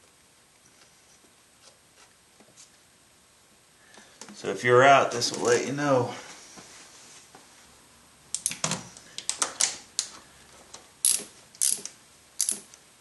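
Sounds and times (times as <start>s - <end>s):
sharp metal clicks: 8.3s - 8.6s, 11.0s - 12.8s
socket ratchet clicking: 8.3s - 8.6s, 11.0s - 12.8s.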